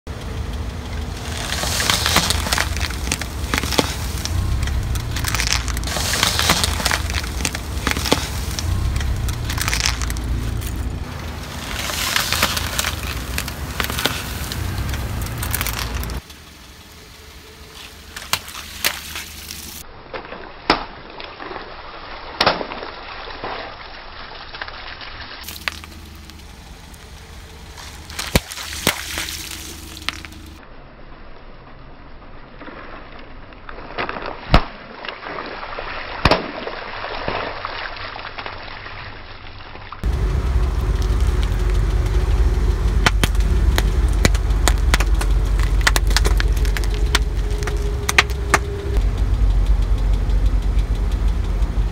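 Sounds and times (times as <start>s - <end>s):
car low rumble: 0.0s - 20.0s, 25.4s - 34.0s, 39.9s - 51.9s
wooden skewers cracking and snapping: 0.5s - 16.5s, 17.7s - 30.6s, 39.6s - 49.0s
water splashing: 1.0s - 19.8s, 21.4s - 30.6s, 33.8s - 49.0s
plastic cracking under tyre: 1.2s - 10.9s, 11.5s - 16.4s, 17.8s - 21.7s, 27.7s - 30.6s, 42.9s - 49.0s.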